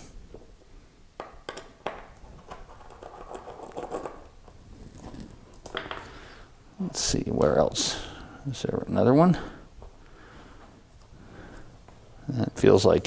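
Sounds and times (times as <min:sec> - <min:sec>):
screwdriver clicking and scratching: 0:02.3 - 0:04.4.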